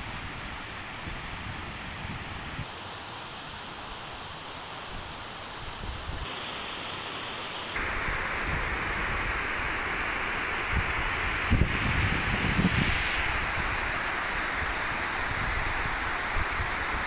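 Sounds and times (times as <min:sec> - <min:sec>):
water rushing down stream: 0:07.8 - 0:17.0
wind buffeting microphone: 0:10.7 - 0:13.8.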